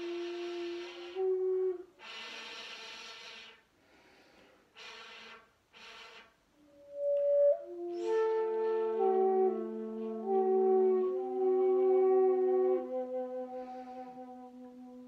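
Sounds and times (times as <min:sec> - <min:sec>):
bamboo flute breathy note: 0:00.0 - 0:03.7, 0:04.3 - 0:15.0
airy breath blows: 0:02.0 - 0:06.4, 0:13.5 - 0:14.4.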